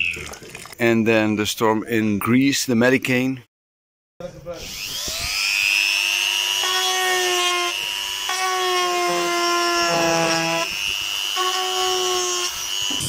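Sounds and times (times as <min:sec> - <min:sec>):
rotary tool grinding: 0:04.7 - 0:13.0.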